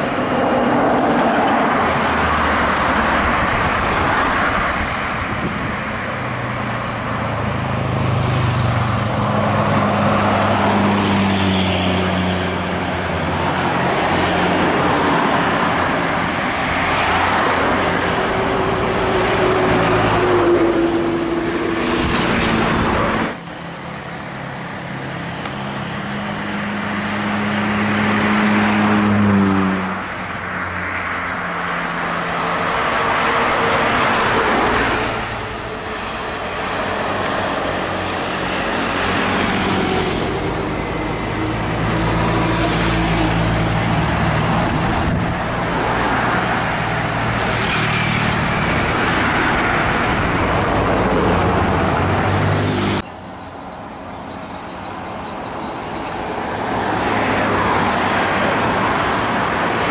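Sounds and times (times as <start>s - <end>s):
road traffic passing: 0.0s - 59.9s.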